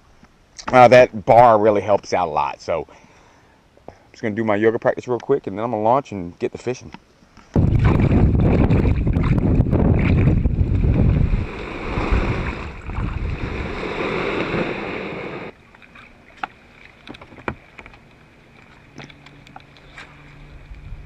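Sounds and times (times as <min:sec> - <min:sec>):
wind rumbling on microphone: 0:07.5 - 0:15.6, 0:19.8 - 0:21.0
shallow water sloshing: 0:07.6 - 0:21.0.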